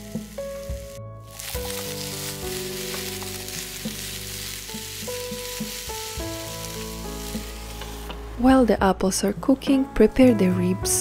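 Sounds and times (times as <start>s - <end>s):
apples sizzling in butter: 0.0s - 8.4s
wooden spoon knocking pan: 2.9s - 6.0s.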